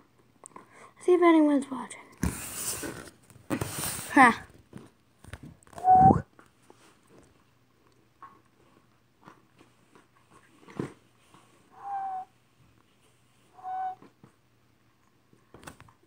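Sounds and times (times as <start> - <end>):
high-pitched vocal cries: 5.8 - 6.2.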